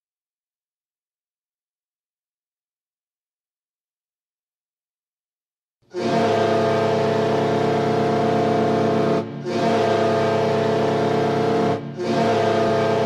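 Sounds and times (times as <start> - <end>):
hockey goal horn blasts: 5.9 - 13.0.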